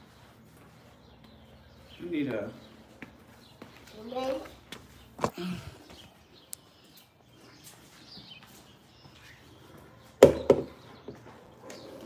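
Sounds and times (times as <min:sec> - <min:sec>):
sharp knocks: 0:10.2 - 0:10.8.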